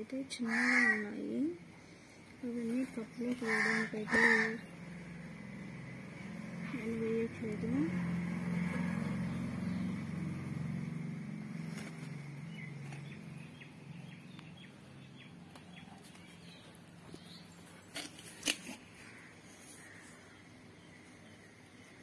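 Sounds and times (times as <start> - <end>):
low engine hum: 2.4 - 17.5.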